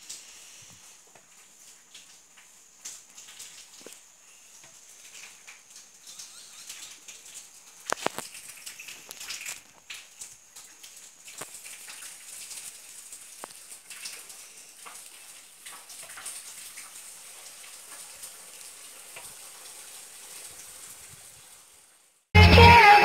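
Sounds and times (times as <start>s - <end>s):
steady high hiss: 0.0s - 15.3s.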